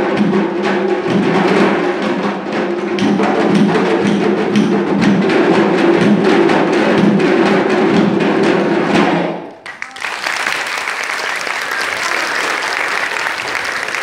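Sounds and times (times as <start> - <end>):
hand drums playing: 0.0 - 10.6
audience applause: 9.6 - 14.0.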